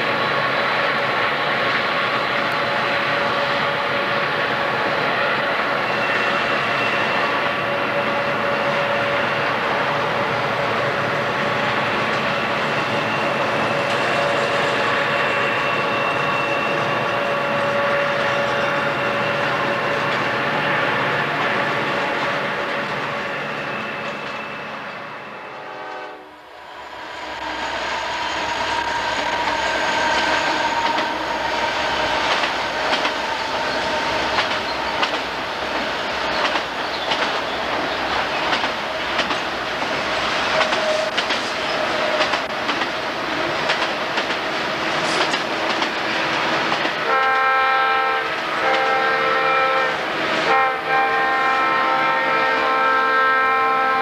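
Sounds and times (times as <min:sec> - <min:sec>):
diesel locomotive engine drone: 0:00.0 - 0:54.0
locomotive horn blasts: 0:25.4 - 0:26.5, 0:47.0 - 0:54.0.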